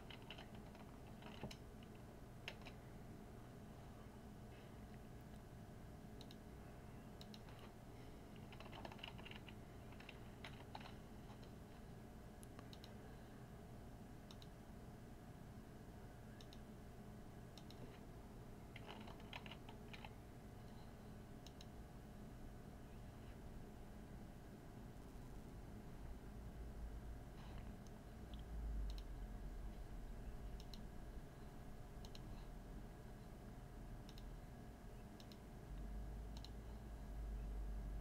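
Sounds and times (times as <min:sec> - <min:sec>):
computer keyboard typing: 0:00.0 - 0:02.8, 0:07.2 - 0:11.6, 0:18.7 - 0:20.2
faint low hum: 0:00.0 - 0:38.0.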